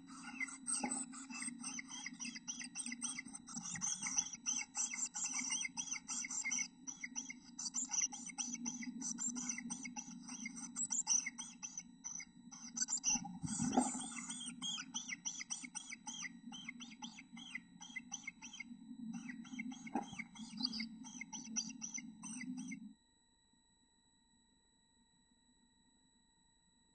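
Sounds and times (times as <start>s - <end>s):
nestlings chirping: 0.0s - 22.8s
low steady hum: 0.0s - 24.8s.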